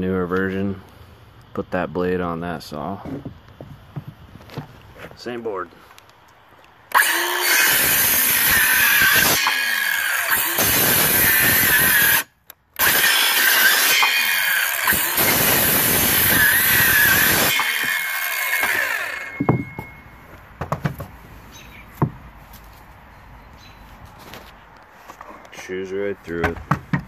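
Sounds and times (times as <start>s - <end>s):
cordless saw cutting wood: 6.9s - 20.0s.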